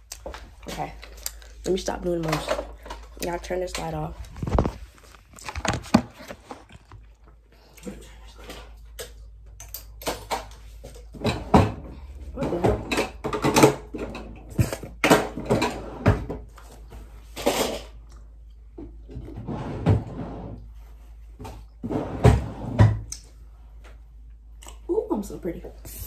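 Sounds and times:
objects knocking and rustling: 0.2 - 7.4, 8.1 - 18.0.

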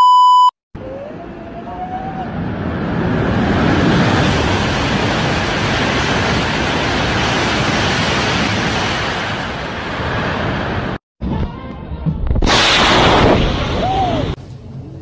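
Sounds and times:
high-speed train passing: 1.0 - 11.0.

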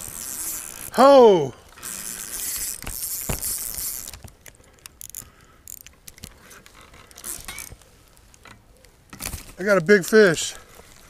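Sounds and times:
fishing reel ratcheting: 0.0 - 1.1, 1.7 - 7.8.

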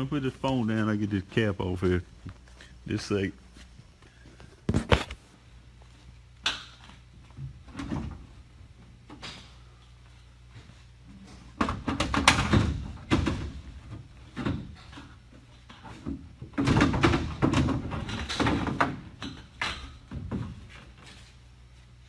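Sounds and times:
low steady hum: 0.0 - 22.0
knocks and clattering: 11.5 - 20.9.

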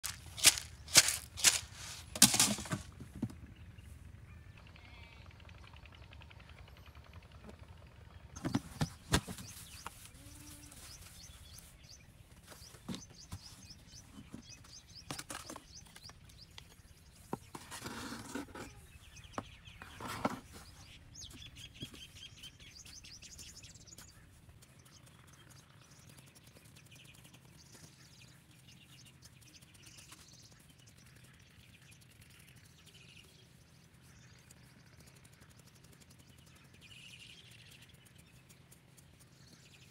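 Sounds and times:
trowel scraping dry soil: 0.0 - 3.0, 17.4 - 18.9, 19.8 - 20.9
small birds chirping: 0.0 - 7.3, 8.0 - 39.9.

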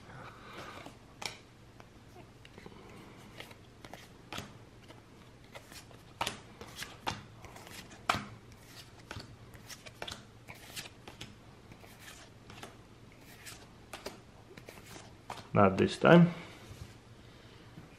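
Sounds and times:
cards being flipped: 3.2 - 15.9.

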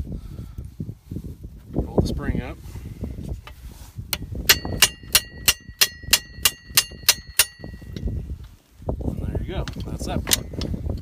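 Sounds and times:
hammer striking metal pin: 4.5 - 8.0.

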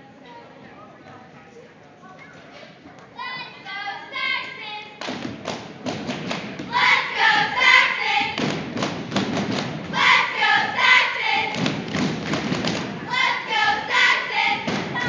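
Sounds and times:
rhythmic thumps: 5.0 - 15.0
cheerleaders shouting in unison: 6.7 - 8.4, 9.9 - 11.6, 13.0 - 15.0.

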